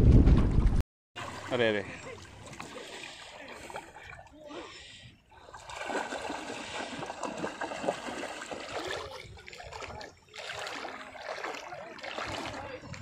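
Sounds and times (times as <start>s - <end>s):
seawater splashing from wading: 1.2s - 13.0s
fish dragged through water: 4.8s - 13.0s.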